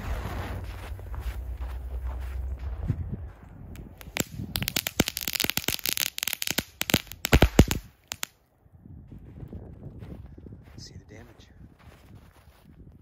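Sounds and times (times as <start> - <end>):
firecracker bangs: 3.8 - 8.3
firecracker fizzing and crackling: 3.8 - 8.4.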